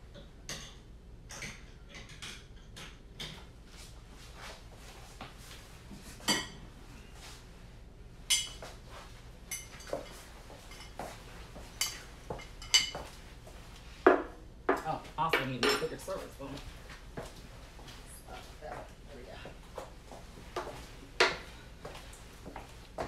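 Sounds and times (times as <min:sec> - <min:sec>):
dishes and cutlery clinking: 0:06.2 - 0:06.7, 0:08.3 - 0:08.7, 0:09.5 - 0:13.2, 0:15.2 - 0:16.2.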